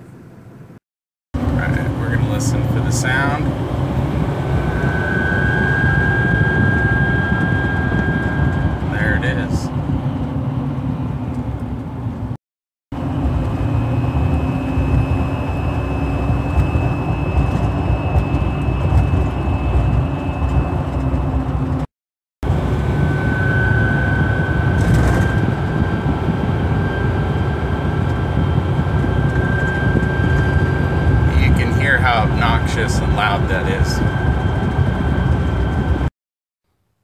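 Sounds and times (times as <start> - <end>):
road and engine noise: 0.0 - 0.8, 1.4 - 36.1
whistling hum of light bar: 4.5 - 9.5, 13.6 - 21.5, 22.8 - 36.1.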